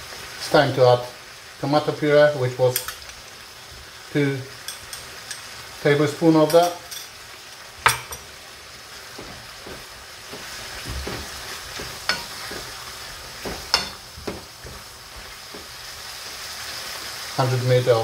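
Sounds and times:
food sizzling in a frying pan: 0.0 - 18.0
wooden spatula scraping a pan: 8.9 - 17.2.

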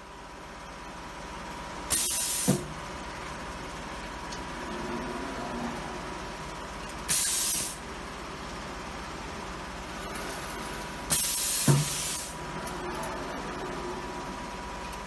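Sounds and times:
air hiss from press cylinder: 1.9 - 2.7, 7.1 - 7.8, 11.1 - 12.4.

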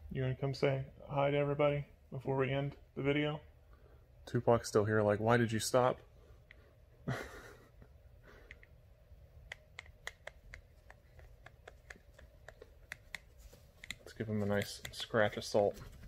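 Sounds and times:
soft rustle: 13.1 - 16.0.

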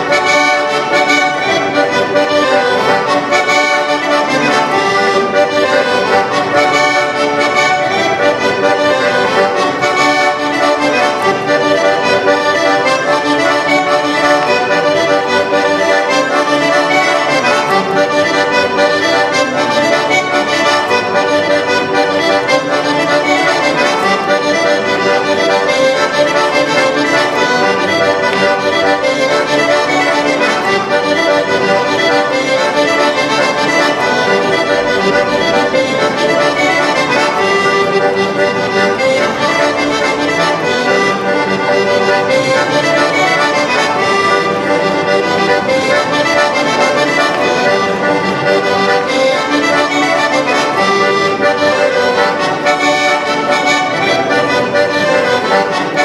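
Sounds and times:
button accordion playing: 0.0 - 56.0.

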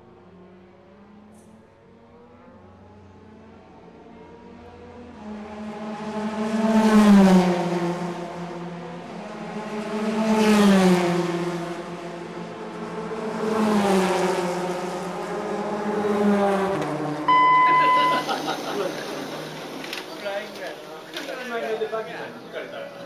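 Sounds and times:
racing car passing by: 0.1 - 21.1.

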